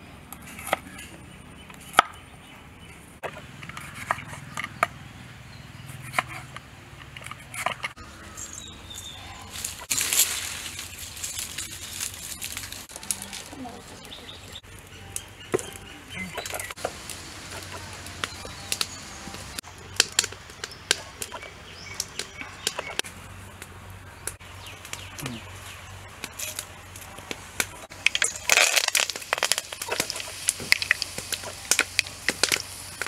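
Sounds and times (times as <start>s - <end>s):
firewood crackling and popping: 6.1s - 33.0s
seeds sizzling in hot oil: 28.0s - 33.0s.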